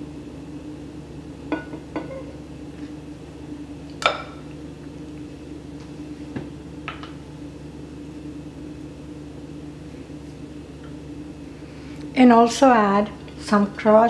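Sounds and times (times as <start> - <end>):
steady low hum: 0.0 - 14.0
kitchenware clink: 1.5 - 2.3.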